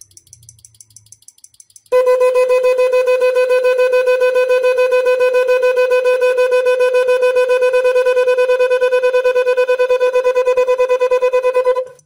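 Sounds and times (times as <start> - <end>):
pulsing horn note: 2.0 - 12.0.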